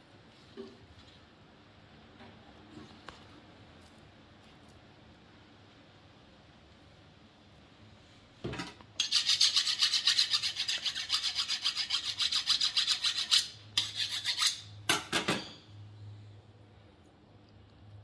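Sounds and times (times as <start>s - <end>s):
knife being sharpened: 9.0s - 14.8s.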